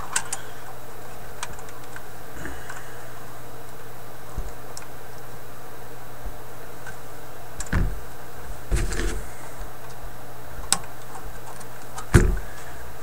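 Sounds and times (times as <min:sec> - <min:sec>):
faint hum: 0:00.0 - 0:13.0.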